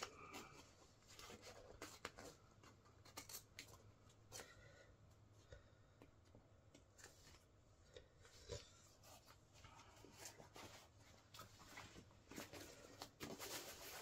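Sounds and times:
jacket fabric rustling: 0:08.8 - 0:14.0.

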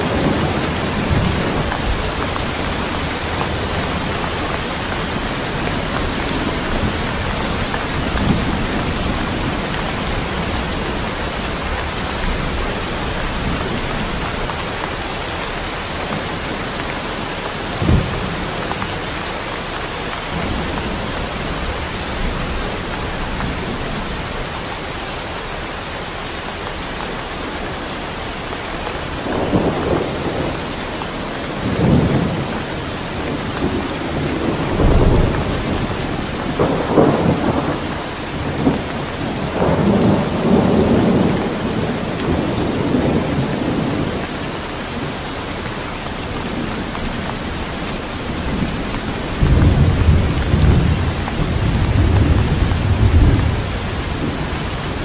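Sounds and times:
rolling thunder: 0:00.0 - 0:14.8, 0:29.2 - 0:44.2, 0:46.3 - 0:55.0
steady rain: 0:00.0 - 0:55.0.

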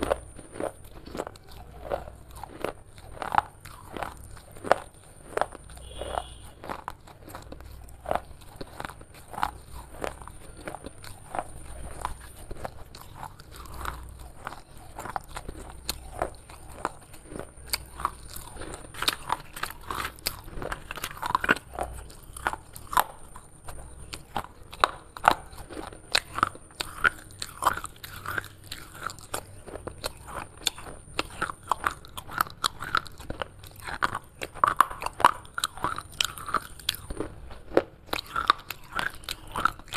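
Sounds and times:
clay shards crunching in mouth: 0:00.0 - 0:39.9.

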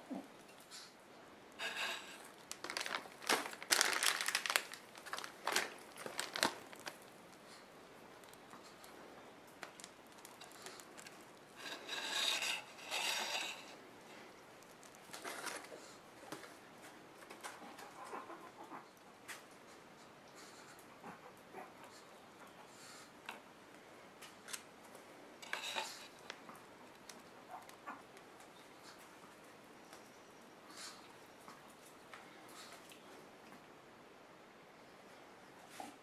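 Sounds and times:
plastic piping bag crinkling: 0:01.6 - 0:13.8, 0:14.6 - 0:16.5, 0:25.4 - 0:27.8.

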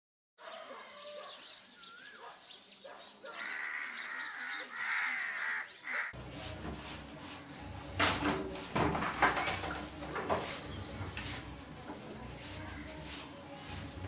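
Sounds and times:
crows cawing: 0:03.3 - 0:06.2.

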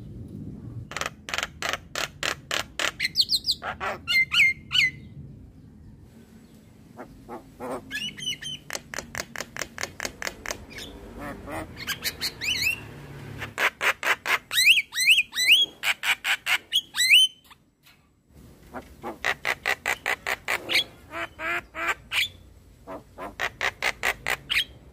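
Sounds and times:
bird harsh squawking calls: 0:07.0 - 0:17.6, 0:18.7 - 0:24.8.

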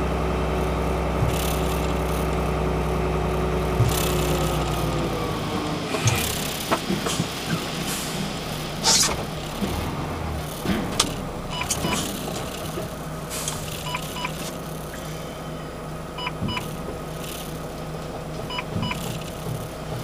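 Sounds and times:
truck engine running: 0:00.0 - 0:20.0
brief hisses: 0:08.8 - 0:09.3
short electronic beeps: 0:13.8 - 0:14.4, 0:16.2 - 0:16.7, 0:18.5 - 0:19.1.

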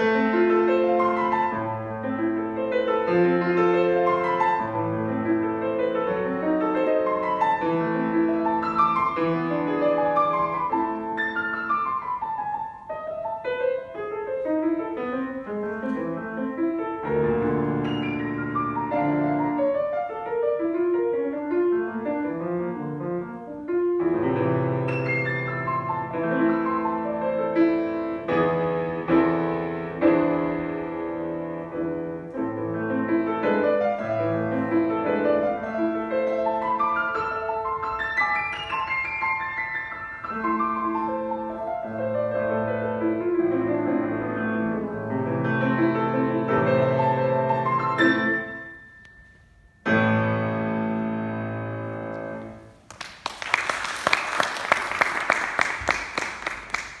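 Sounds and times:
grand piano playing classical piece: 0:00.0 - 0:57.0
audience applause: 0:52.9 - 0:57.0.

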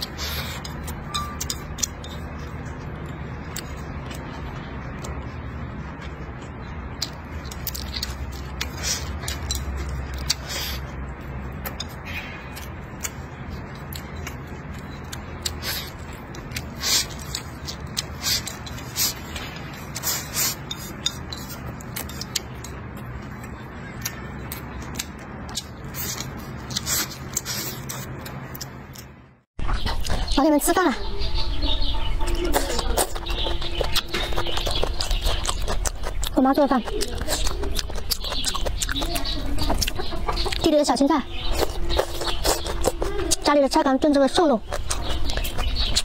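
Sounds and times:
chewing and smacking: 0:00.0 - 0:46.0
chopsticks clicking on a plate: 0:00.6 - 0:04.2.

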